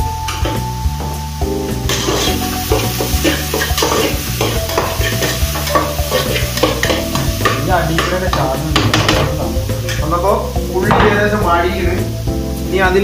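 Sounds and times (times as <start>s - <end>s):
onions sizzling: 0.0s - 13.0s
metal spatula scraping pot: 1.9s - 9.2s.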